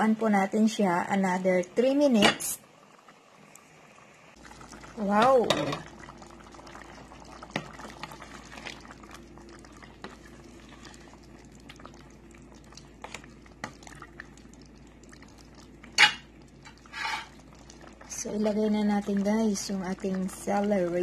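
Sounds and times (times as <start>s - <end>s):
stew bubbling in a pot: 0.0s - 21.0s
wooden spoon stirring: 7.5s - 12.0s.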